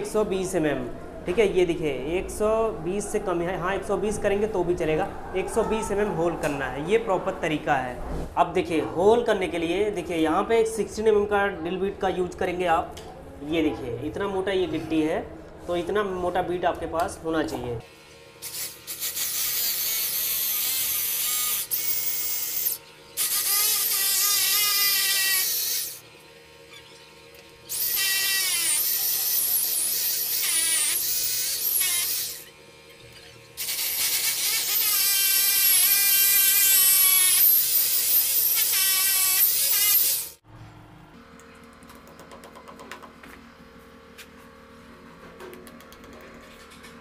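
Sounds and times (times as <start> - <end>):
hammer drill boring through tile: 18.4 - 26.0, 27.7 - 32.5, 33.6 - 40.4.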